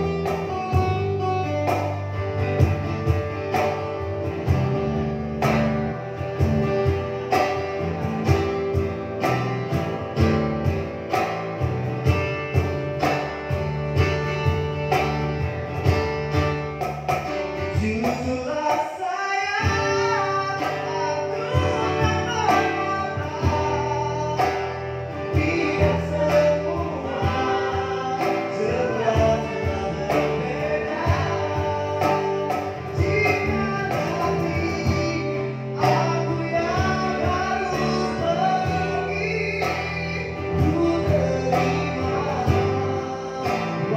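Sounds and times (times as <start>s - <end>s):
acoustic guitar: 0.0s - 43.9s
plucked string instrument: 0.0s - 43.9s
man singing: 17.6s - 43.9s.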